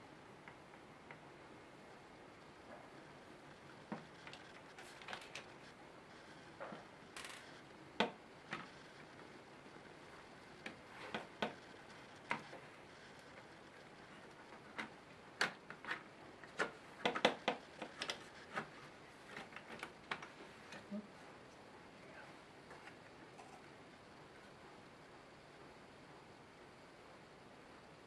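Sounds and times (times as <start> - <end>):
clicks and taps of laptop parts: 14.7 - 18.7.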